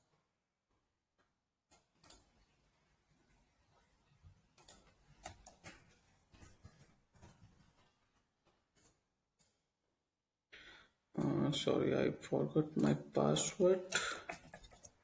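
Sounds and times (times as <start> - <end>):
mouse clicks: 1.7 - 2.3, 4.6 - 5.8
keyboard keystrokes: 13.9 - 15.0.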